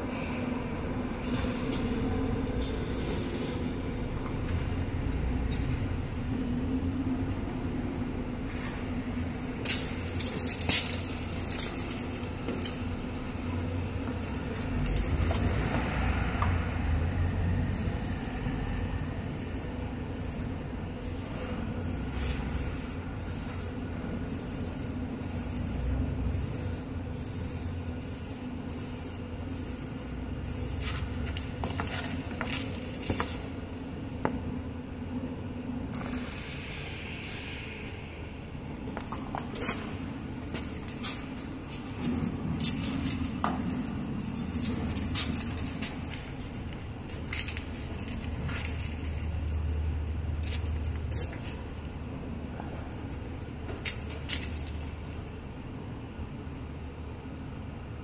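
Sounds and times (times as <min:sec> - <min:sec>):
steady low hum: 0:00.0 - 0:58.0
metallic clinks and taps: 0:09.4 - 0:15.4, 0:38.9 - 0:52.0, 0:53.7 - 0:54.9.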